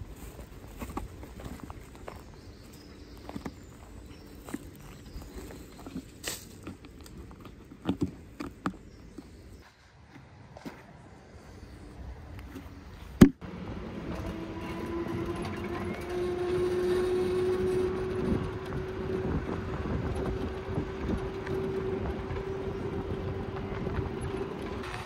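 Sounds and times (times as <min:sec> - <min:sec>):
electric bike hum: 0:00.0 - 0:10.4, 0:11.2 - 0:25.0
tyre and wind noise: 0:00.0 - 0:25.0
small rattles over bumps: 0:14.1 - 0:25.0.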